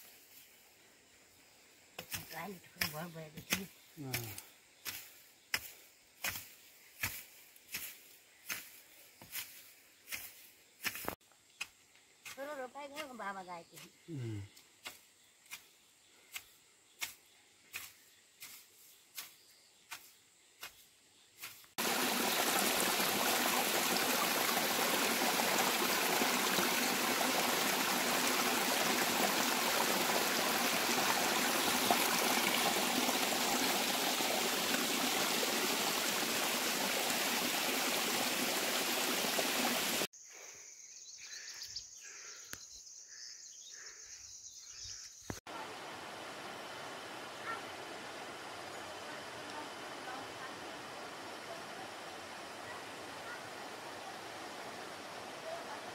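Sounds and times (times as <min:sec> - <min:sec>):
hoe chopping muddy soil: 0:02.0 - 0:11.2, 0:21.4 - 0:39.9
mountain stream rushing over rocks: 0:21.8 - 0:40.1, 0:45.5 - 0:55.9
steady high hiss: 0:45.6 - 0:53.2.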